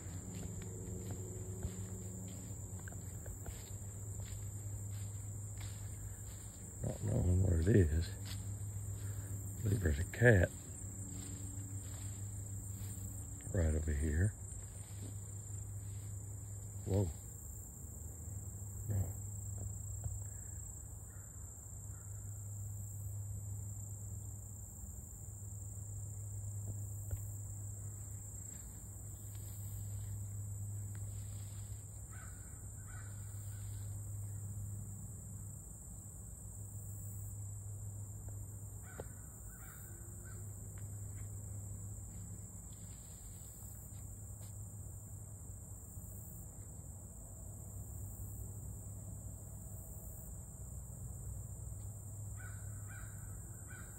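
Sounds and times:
field insects chirring: 0.0 - 53.9
crows cawing: 31.4 - 33.9, 38.8 - 40.4, 52.4 - 53.9.

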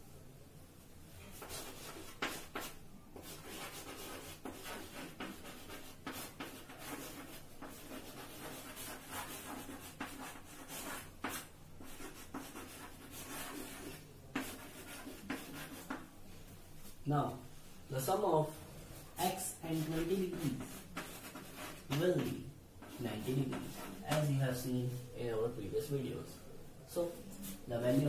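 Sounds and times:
chalk scratching on blackboard: 1.3 - 16.1, 19.2 - 24.4
chalk tapping on board: 1.4 - 16.1, 19.9 - 24.3.

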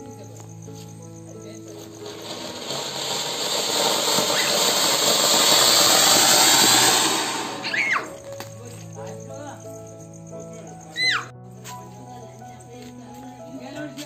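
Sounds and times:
firework fountain hissing: 1.5 - 8.4.

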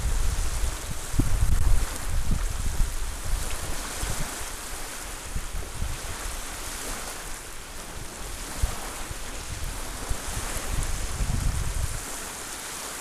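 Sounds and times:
wind buffeting microphone: 0.0 - 12.6
small waves lapping on shore: 0.0 - 13.0.

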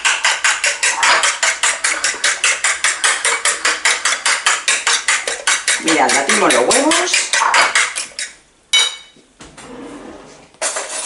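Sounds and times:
whisk clicking against bowl: 0.1 - 8.4.

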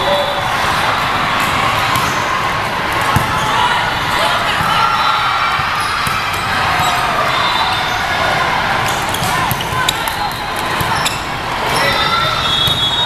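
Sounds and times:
din of many voices: 0.0 - 13.0
volleyball being hit: 3.0 - 3.4, 9.1 - 11.1.

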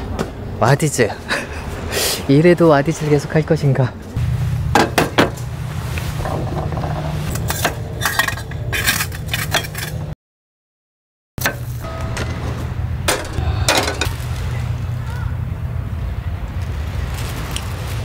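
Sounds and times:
steady low rumble: 3.9 - 10.1, 11.6 - 18.0
utensils clinking: 6.2 - 10.1.

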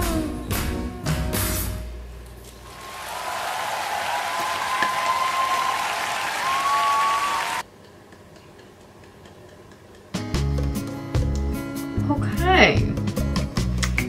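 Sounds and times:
audience applauding: 2.7 - 7.6.

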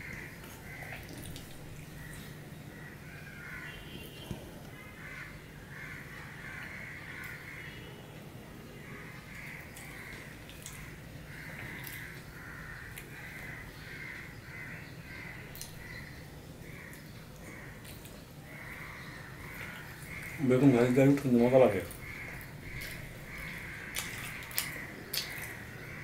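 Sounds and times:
crows cawing: 0.0 - 1.0, 2.0 - 4.1, 4.8 - 7.9, 8.7 - 17.8, 18.4 - 26.0
faint eating clicks: 15.5 - 15.9, 21.1 - 25.9.

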